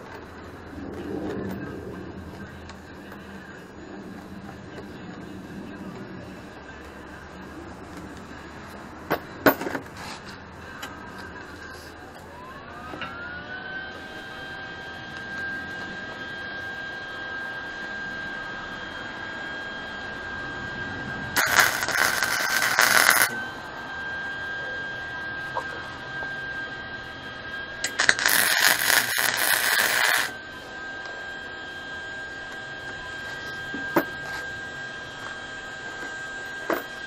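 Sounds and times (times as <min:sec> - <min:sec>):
high-pitched whine: 0:00.0 - 0:37.0
welder arc crackling: 0:21.4 - 0:23.4, 0:27.8 - 0:30.4.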